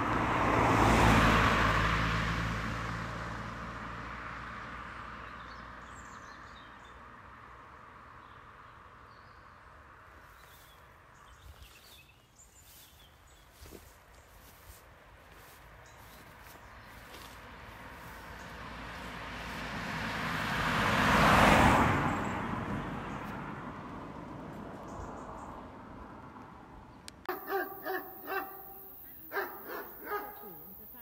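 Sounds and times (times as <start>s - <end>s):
car passing by: 0.0s - 8.6s, 14.4s - 26.9s
birds chirping: 27.3s - 31.0s.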